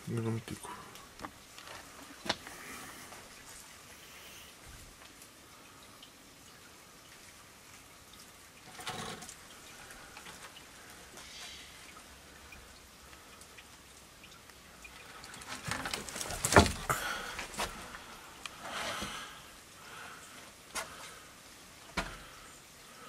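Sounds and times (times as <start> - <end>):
wooden boards scraping: 15.4 - 17.8
wooden knocks and clatter: 15.4 - 17.9.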